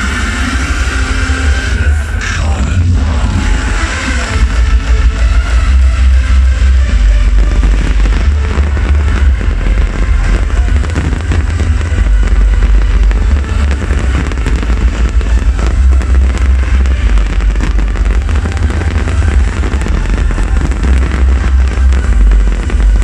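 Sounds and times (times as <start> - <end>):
fireworks bursting and crackling: 0.0 - 23.0
loud music with heavy bass: 0.0 - 23.0.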